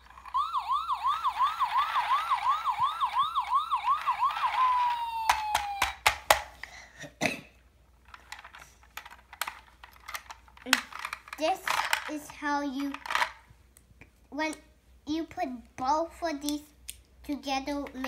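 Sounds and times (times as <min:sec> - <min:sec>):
toy siren warbling: 0:00.0 - 0:06.0.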